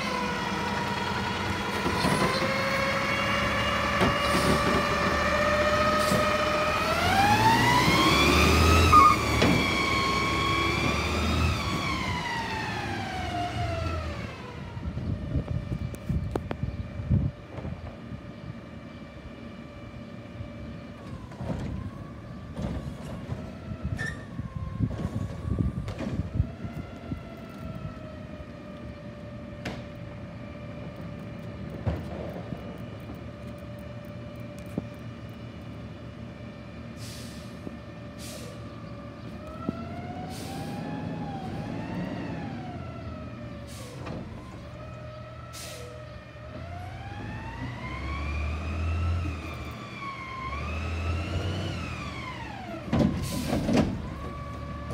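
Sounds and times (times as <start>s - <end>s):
garbage truck engine and hydraulics whine: 0.0s - 54.9s
short air hisses: 37.0s - 37.6s, 38.2s - 38.6s, 45.6s - 45.9s.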